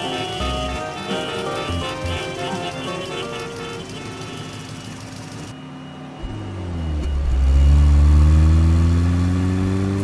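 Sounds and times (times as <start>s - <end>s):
car engine starting and revving: 6.2s - 10.0s.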